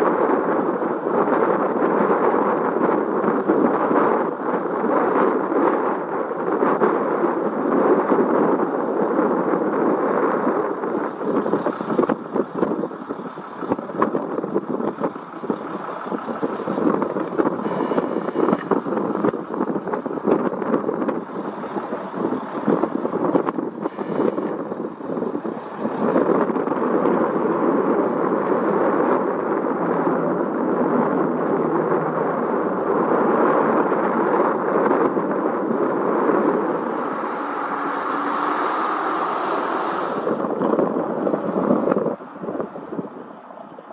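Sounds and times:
aircraft engine rushing: 0:09.9 - 0:43.9.

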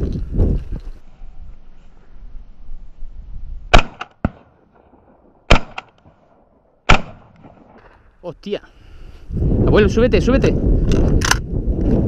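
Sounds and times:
shotgun shots: 0:03.7 - 0:07.8.

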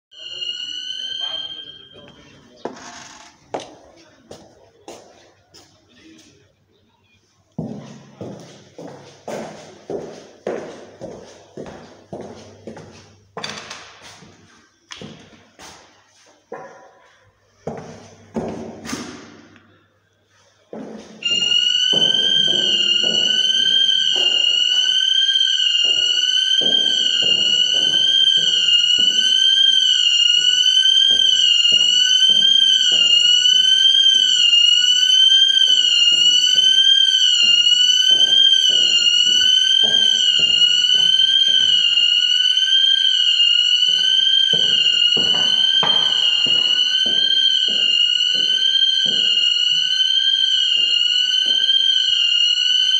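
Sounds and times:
electronic alarm warbling: 0:00.1 - 0:03.9, 0:21.2 - 0:52.9.

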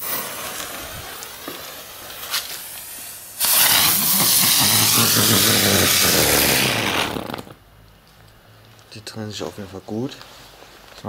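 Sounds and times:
firework fuse sizzling: 0:00.0 - 0:07.6
firework spinner hissing: 0:00.0 - 0:07.6.

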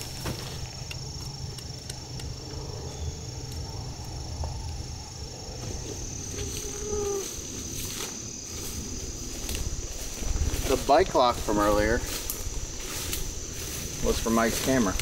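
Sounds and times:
insects droning: 0:00.0 - 0:15.0
low rumble: 0:01.0 - 0:10.8.

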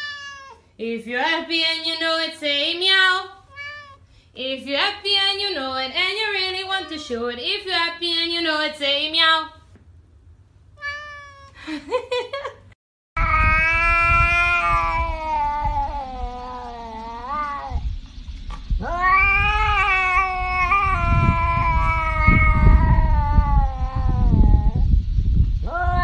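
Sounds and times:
cat yowling: 0:00.0 - 0:00.7, 0:03.5 - 0:04.0, 0:06.4 - 0:07.2, 0:10.8 - 0:11.6, 0:13.2 - 0:17.8, 0:18.8 - 0:24.8, 0:25.7 - 0:26.0
low rumbling noise: 0:13.2 - 0:26.0.

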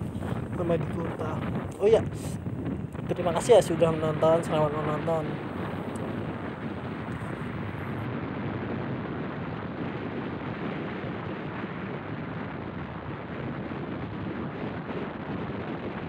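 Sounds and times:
road noise: 0:00.0 - 0:08.0
wind rushing on microphone: 0:00.0 - 0:16.0.

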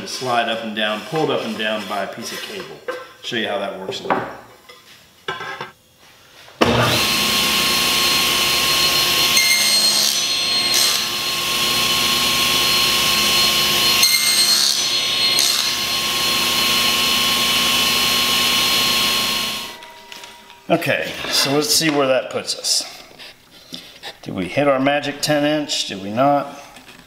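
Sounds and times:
table saw cutting metal: 0:06.6 - 0:22.1.

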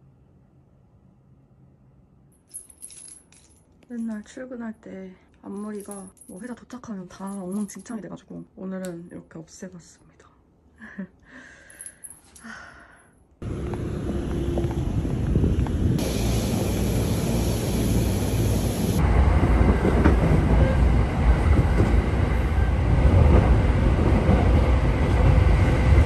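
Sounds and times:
train rumbling: 0:13.4 - 0:26.0.

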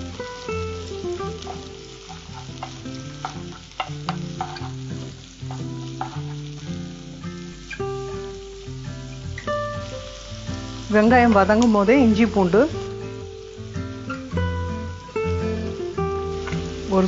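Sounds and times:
onions sizzling in oil: 0:00.0 - 0:17.0
spatula scraping pan: 0:02.1 - 0:04.8.

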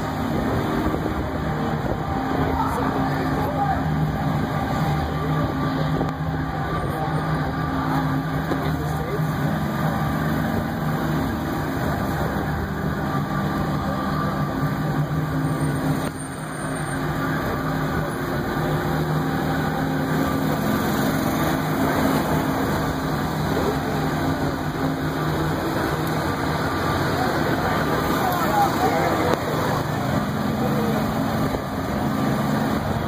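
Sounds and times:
vehicle engine hum: 0:00.0 - 0:33.0.

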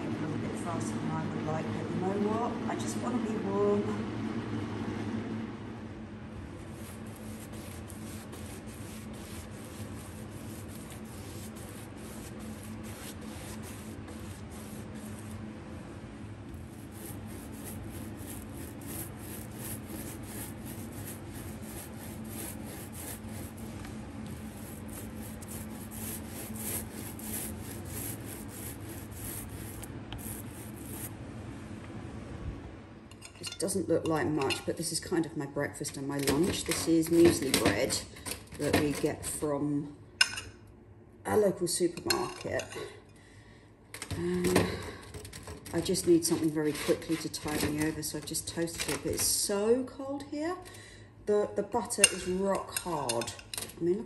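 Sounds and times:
fan heater hum: 0:00.0 - 0:54.0
paintbrush scraping on wood: 0:06.6 - 0:15.4, 0:16.6 - 0:31.2, 0:45.8 - 0:47.9.

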